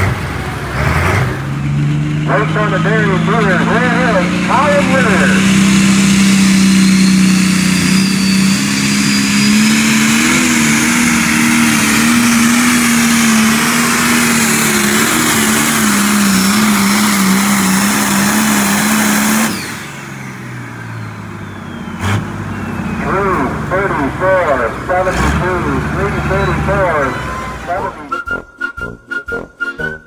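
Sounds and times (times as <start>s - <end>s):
tractor engine at full throttle: 0.0s - 28.4s.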